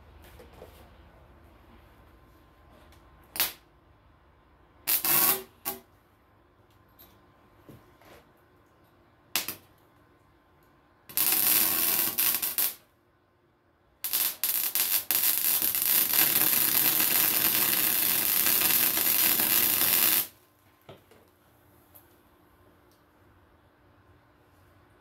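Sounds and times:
electric welder crackling hiss: 4.9s - 5.8s, 11.1s - 12.8s, 14.0s - 20.4s.

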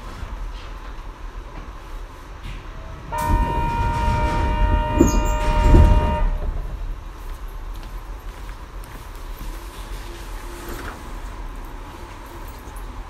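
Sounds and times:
train warning tone: 3.1s - 6.8s.

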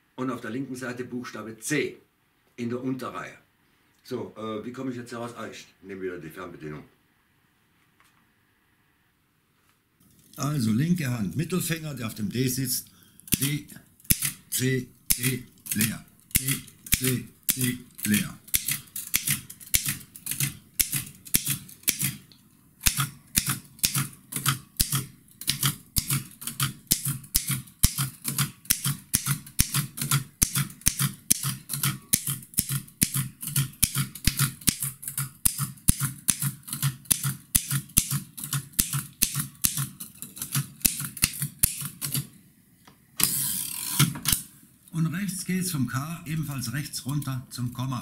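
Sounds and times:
mechanical typewriter key strikes: 13.3s - 14.5s, 15.1s - 22.2s, 22.8s - 42.2s.

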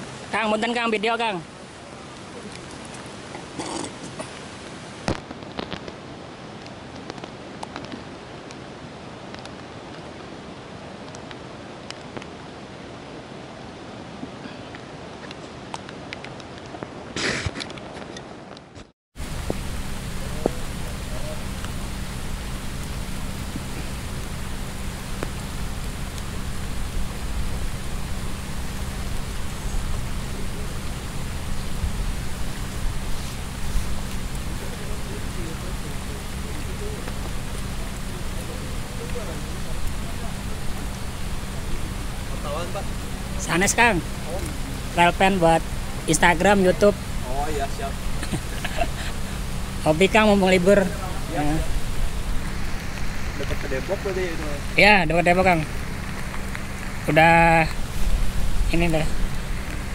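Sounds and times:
steady rain: 0.0s - 59.9s
low rumble: 19.2s - 59.9s
raindrops ticking: 19.2s - 59.9s.

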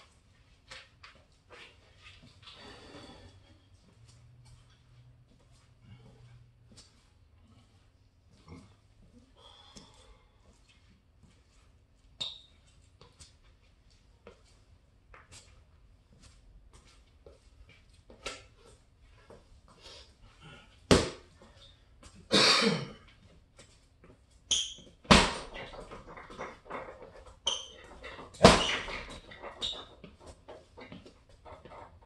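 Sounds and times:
light taps and squeaks: 12.2s - 13.2s, 24.5s - 25.0s, 25.6s - 32.0s
gloves thudding on punching bag: 20.9s - 21.3s, 25.1s - 25.8s, 28.1s - 29.2s.

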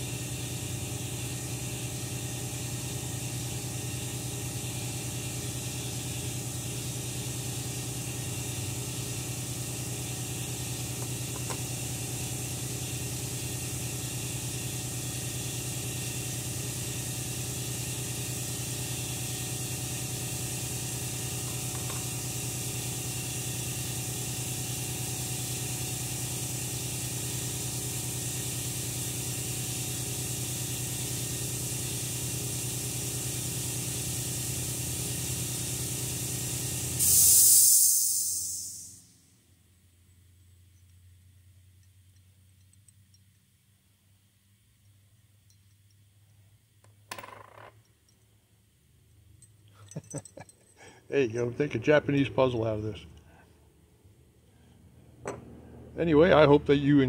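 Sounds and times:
air compressor hissing and humming: 0.0s - 39.4s, 54.6s - 57.0s.

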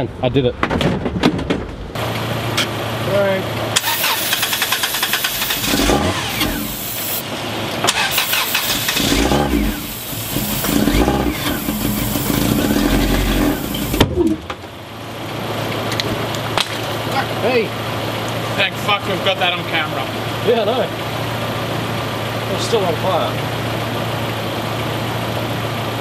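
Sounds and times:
car engine cranking and firing roughly: 0.9s - 14.8s
engine backfire bang: 3.7s - 14.6s
aerosol spraying: 3.8s - 7.2s, 8.1s - 14.0s.

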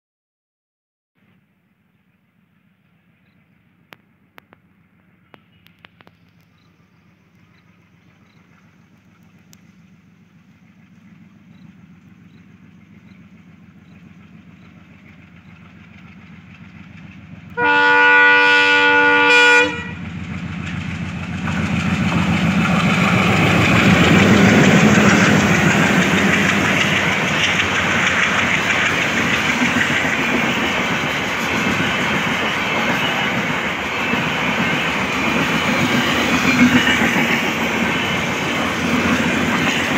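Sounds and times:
diesel locomotive engine rumble: 1.9s - 39.9s
train wheels rolling on rails: 2.6s - 39.9s
multi-tone train horn: 17.5s - 20.1s.

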